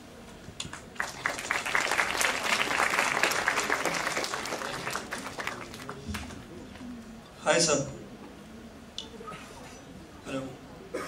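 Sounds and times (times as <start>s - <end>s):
audience applauding: 0.7s - 6.5s.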